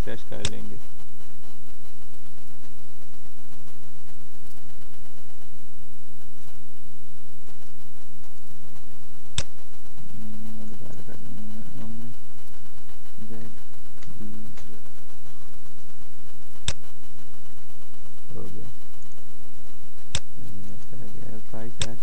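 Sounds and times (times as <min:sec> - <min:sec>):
electrical mains hum: 0:00.0 - 0:22.0
sharp click: 0:21.8 - 0:22.0.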